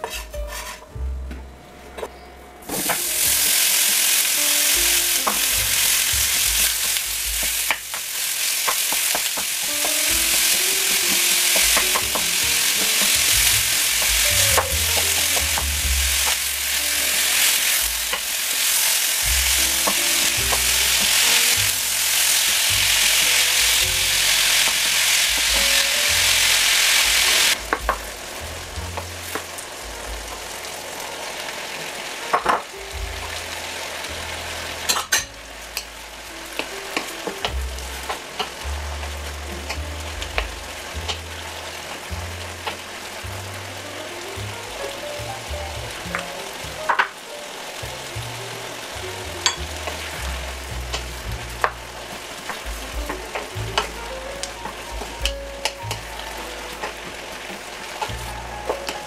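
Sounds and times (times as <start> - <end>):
wooden spoon scraping a pan: 0.0 - 1.0
meat sizzling in a pan: 2.7 - 59.0.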